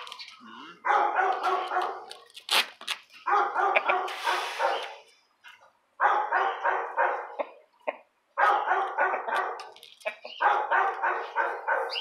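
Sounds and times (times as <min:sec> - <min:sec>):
dog barking rapidly: 0:00.8 - 0:02.1, 0:03.2 - 0:04.9, 0:06.0 - 0:07.5, 0:08.4 - 0:09.6, 0:10.3 - 0:12.0.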